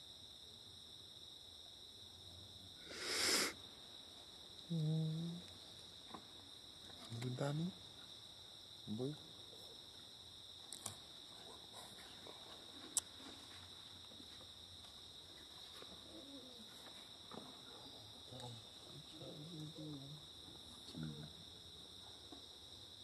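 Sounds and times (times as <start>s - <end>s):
high-pitched insect chorus: 0.0s - 23.0s.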